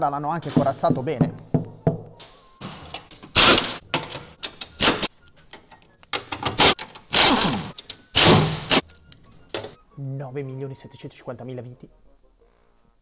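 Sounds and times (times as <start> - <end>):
pneumatic impact wrench bursts: 6.6 - 8.8.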